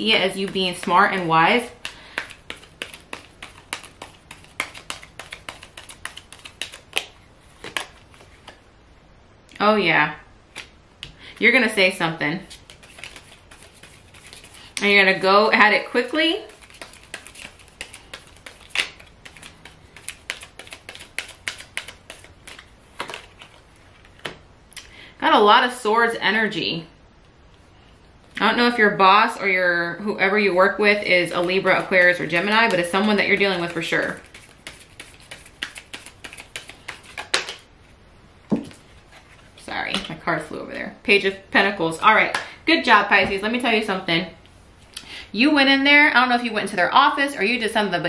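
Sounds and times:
cards shuffling: 0:00.2 - 0:08.6, 0:10.5 - 0:10.8, 0:12.4 - 0:14.8, 0:16.4 - 0:24.4, 0:31.3 - 0:37.6.

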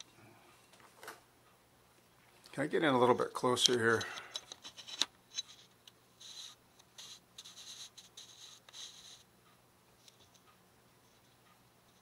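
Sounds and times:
soft scratching sounds: 0:03.2 - 0:09.3, 0:10.0 - 0:12.0.

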